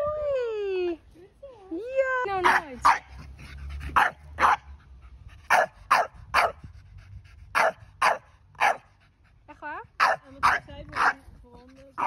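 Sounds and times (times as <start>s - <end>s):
dog barking sharply: 4.0s - 4.6s.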